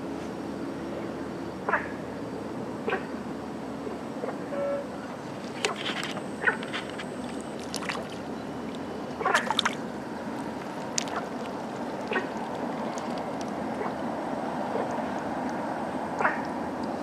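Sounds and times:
fish splashing at water surface: 6.4 - 9.8.

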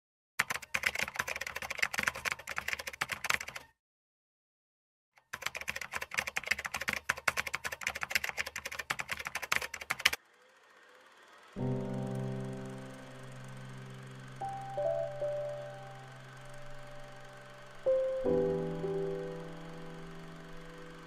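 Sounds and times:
typing keystroke clicks: 0.4 - 3.7, 5.2 - 10.2.

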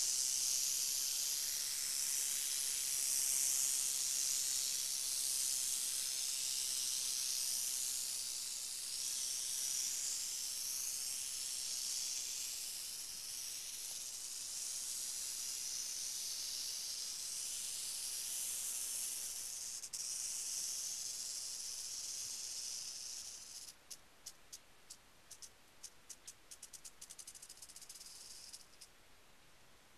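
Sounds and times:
rattlesnake rattling: 0.0 - 28.9.

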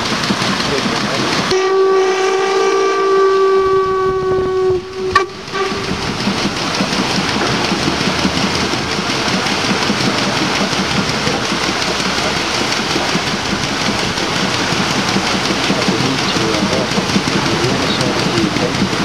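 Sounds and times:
paddle wheel churning water: 0.0 - 19.0
steam whistle blast: 1.5 - 5.9.

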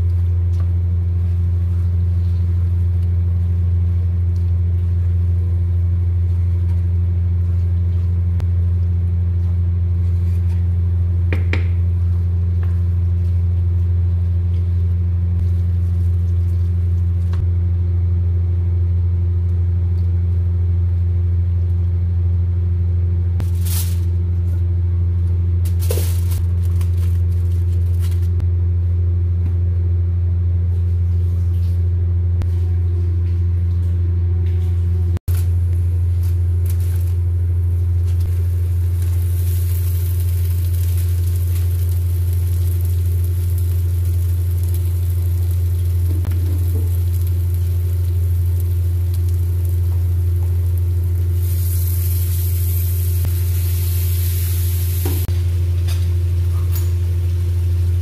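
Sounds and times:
loud low hum: 0.0 - 58.0
meat sizzling in a pan: 38.3 - 55.3.

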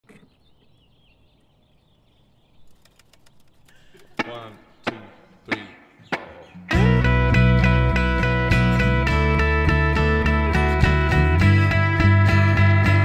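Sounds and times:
sharp count-in beats: 4.2 - 9.9
band playing a song: 6.3 - 13.0.

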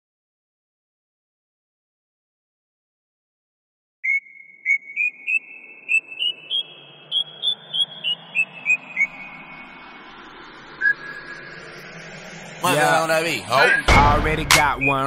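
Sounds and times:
whistle notes with echo: 4.0 - 9.7, 12.6 - 15.0
faint low drone: 5.3 - 15.0.

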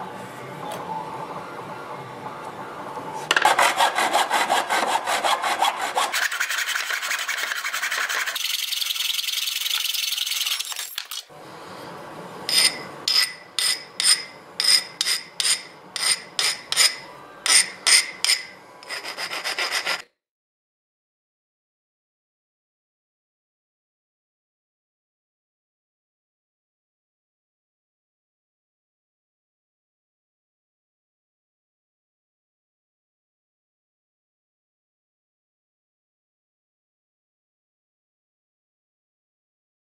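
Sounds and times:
hacksaw cutting aluminium: 3.3 - 11.2, 12.5 - 20.1
metallic ring: 12.5 - 18.6.

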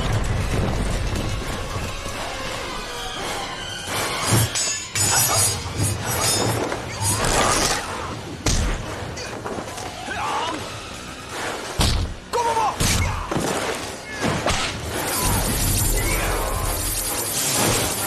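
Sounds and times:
music: 0.0 - 18.0.

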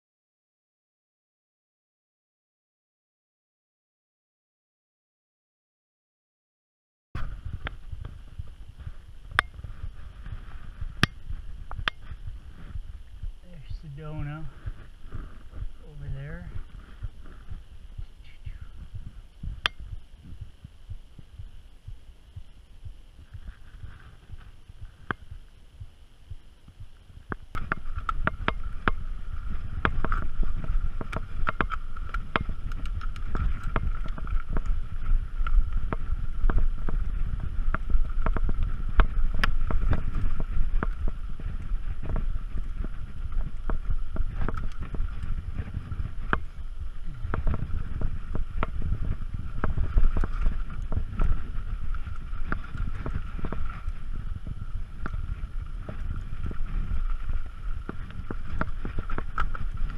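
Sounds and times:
wind rumbling on microphone: 7.2 - 59.9
bike rattling over rock: 27.6 - 59.9.

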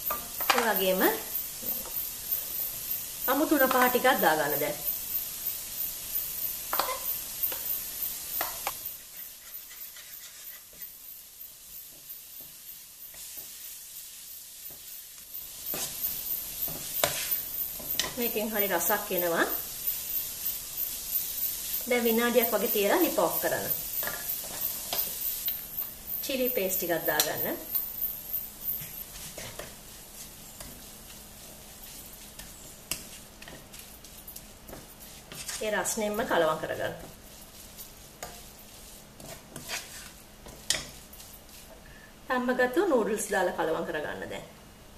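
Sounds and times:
vegetables sizzling in oil: 0.0 - 44.9
wooden spatula scraping a wok: 6.6 - 13.9, 15.5 - 42.1
wooden spoon scraping pan: 9.0 - 11.0, 28.8 - 41.8.

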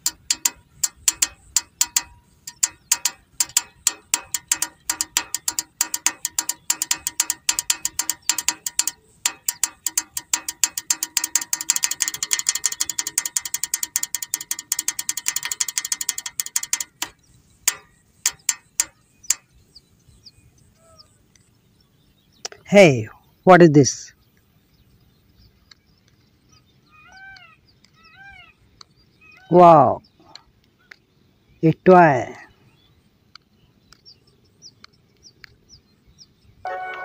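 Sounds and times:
toy car motor ratcheting clicks: 0.0 - 18.9.

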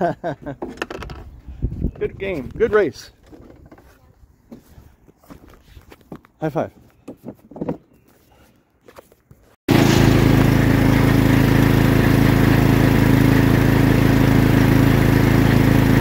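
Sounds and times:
lawn mower engine running: 9.7 - 16.0.

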